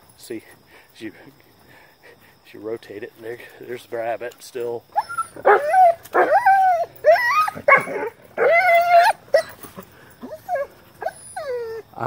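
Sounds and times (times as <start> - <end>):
dog whining and yipping: 4.9 - 12.0.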